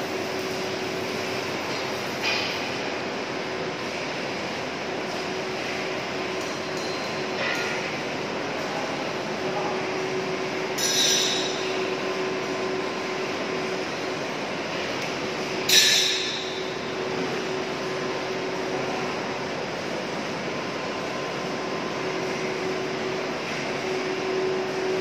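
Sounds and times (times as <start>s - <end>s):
factory machinery hum: 0.0s - 25.0s
sharp metallic clanks: 10.8s - 11.6s, 15.7s - 16.7s.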